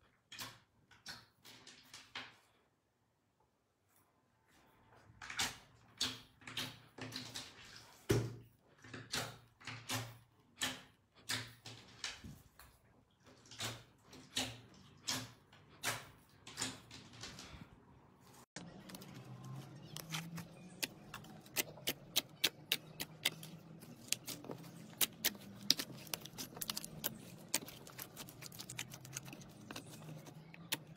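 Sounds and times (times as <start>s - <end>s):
fingers pressing sticky slime: 19.9s - 30.9s.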